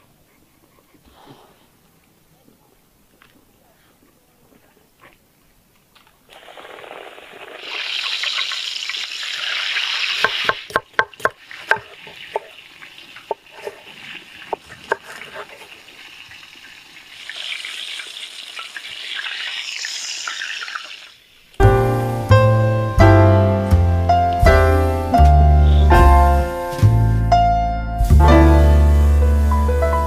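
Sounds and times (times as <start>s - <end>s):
food sizzling in frying pan: 6.4s - 10.7s, 11.4s - 21.4s, 28.5s - 30.0s
cleaver chopping on wooden board: 10.2s - 12.5s.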